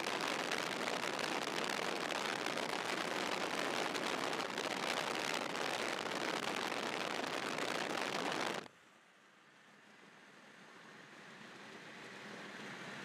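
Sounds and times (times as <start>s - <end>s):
rain on a car: 0.0s - 8.7s
storm wind around a moving car: 0.0s - 8.7s.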